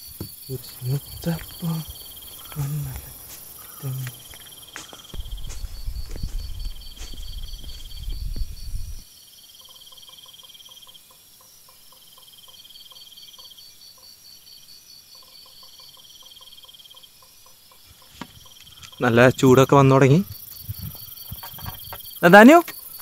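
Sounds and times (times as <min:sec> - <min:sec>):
insect ticking softly: 0:00.0 - 0:09.0, 0:15.2 - 0:23.0
crickets chirping in trills: 0:00.0 - 0:23.0
low rumble: 0:05.2 - 0:09.0.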